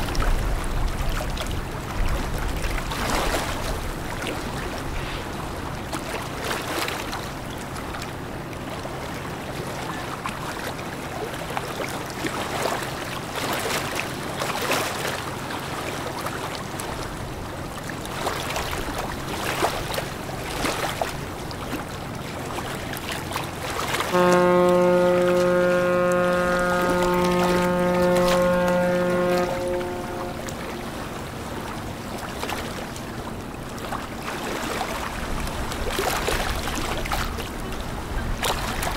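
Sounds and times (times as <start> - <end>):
ship engine hum: 0.1 - 38.9
water rushing: 12.0 - 38.9
ship's horn blast: 23.4 - 36.3.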